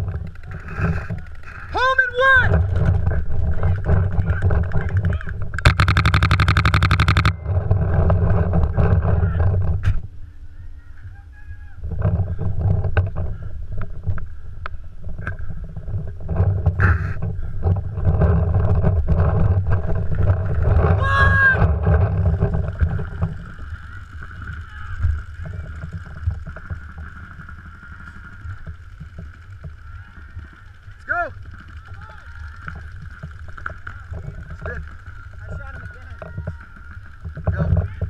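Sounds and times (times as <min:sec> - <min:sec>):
wind rumble on microphone: 0:00.0 - 0:38.0
paintball markers firing: 0:03.8 - 0:07.4.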